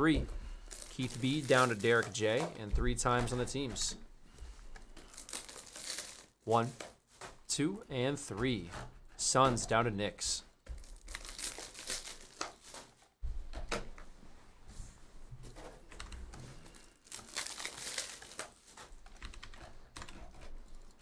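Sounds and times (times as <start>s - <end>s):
computer keyboard typing: 15.9s - 16.3s, 19.0s - 20.5s.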